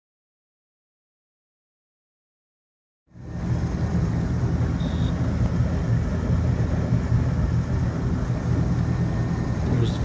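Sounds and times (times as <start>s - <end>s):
boat motor low rumble: 3.1s - 10.0s
short high beep: 4.8s - 5.2s.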